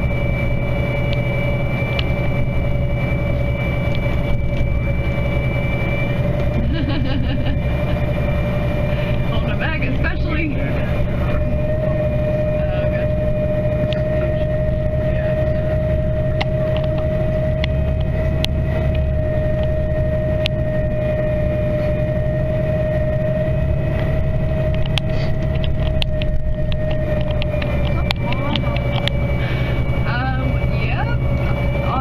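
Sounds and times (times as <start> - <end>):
constant whine: 0.0 - 32.0
vehicle engine and road noise: 0.0 - 32.0.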